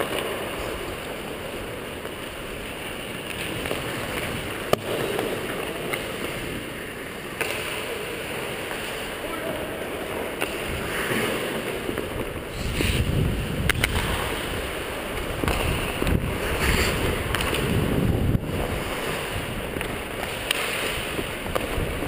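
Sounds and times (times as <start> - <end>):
skate blades scraping ice: 0.0 - 22.0
wind on microphone: 12.1 - 22.0.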